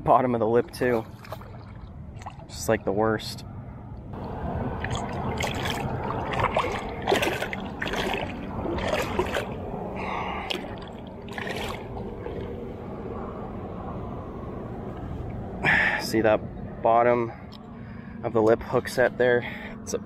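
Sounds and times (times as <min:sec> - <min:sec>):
water lapping: 0:00.5 - 0:02.8, 0:04.2 - 0:12.8
fish splashing at the surface: 0:04.7 - 0:12.6.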